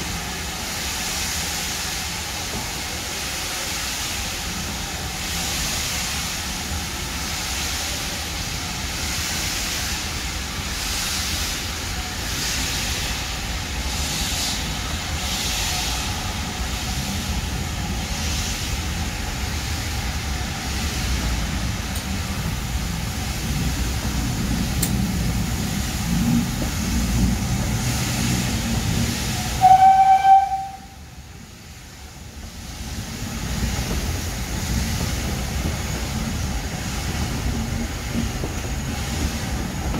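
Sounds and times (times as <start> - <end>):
steam train rail and engine noise: 0.0 - 39.9
steam locomotive whistle blast: 29.4 - 31.0.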